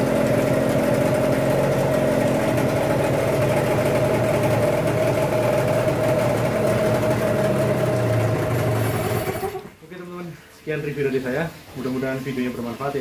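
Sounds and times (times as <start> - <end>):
outboard motor running: 0.0 - 9.8.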